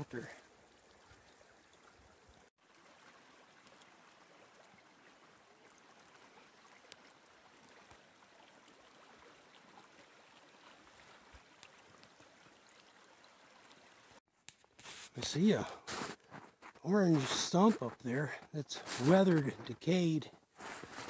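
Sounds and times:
faint creek rushing: 0.0s - 14.2s, 14.8s - 21.0s.

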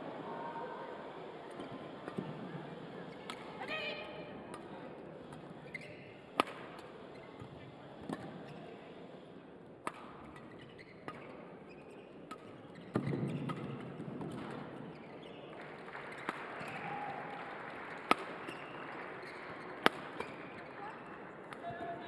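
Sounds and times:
rackets hitting shuttlecock: 3.2s - 3.5s, 5.3s - 8.6s, 9.8s - 15.2s, 16.1s - 16.9s, 18.0s - 21.8s.

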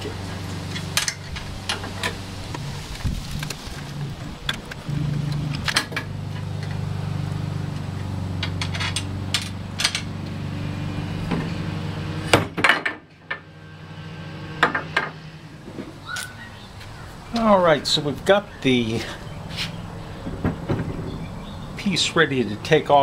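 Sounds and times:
steady low hum: 0.0s - 23.0s
metal clinks and knocks: 8.4s - 10.1s.

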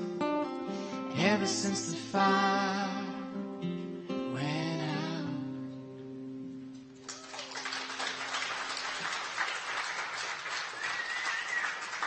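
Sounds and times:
audience applause: 7.0s - 12.0s.

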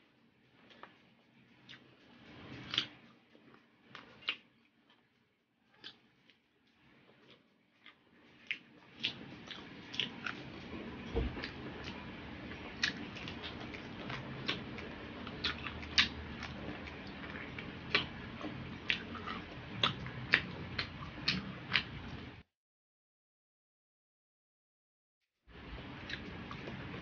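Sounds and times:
chewing with wet clicks: 1.6s - 22.2s, 25.7s - 27.0s
lip smacks: 4.0s - 4.5s, 7.2s - 10.4s, 12.8s - 21.9s.

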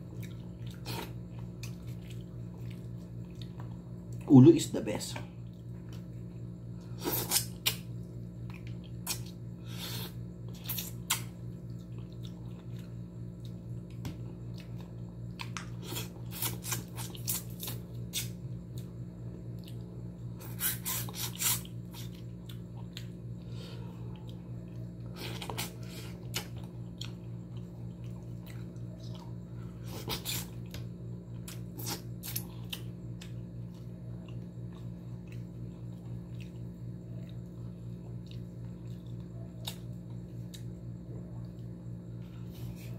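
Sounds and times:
chewing smacks: 0.0s - 4.3s, 10.4s - 18.9s, 21.1s - 23.2s, 24.1s - 40.7s
steady low hum: 0.0s - 42.9s.

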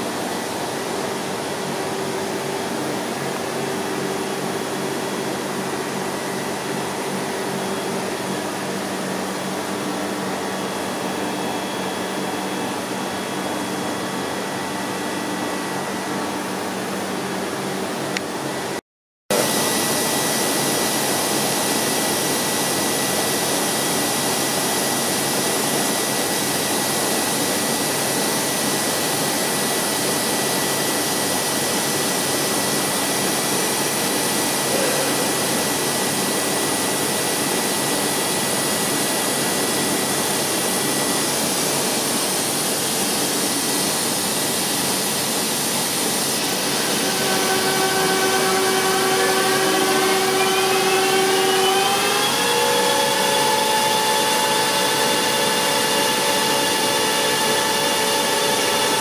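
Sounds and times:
thin high whine: 0.0s - 59.0s
grinder rushing hiss: 34.0s - 38.0s, 44.6s - 59.0s
motor winding up: 46.5s - 59.0s.

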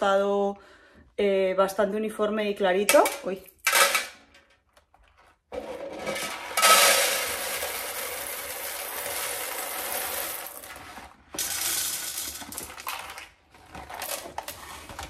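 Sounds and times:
coffee beans pouring into jar: 5.6s - 13.4s.

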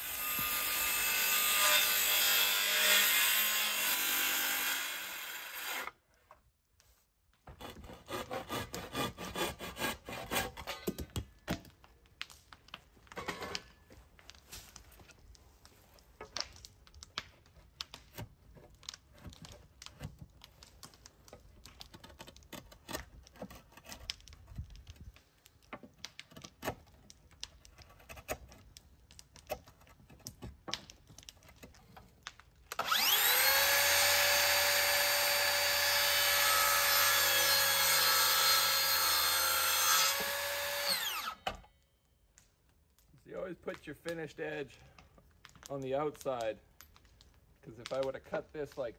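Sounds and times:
chisel scraping wood: 7.4s - 11.1s, 21.9s - 24.6s
miter saw motor whine: 32.8s - 41.4s.

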